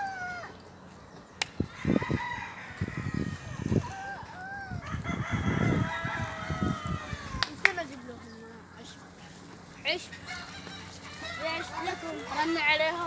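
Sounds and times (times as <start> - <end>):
roosters crowing: 0.0 - 8.4, 9.8 - 13.0
hens clucking: 2.7 - 13.0.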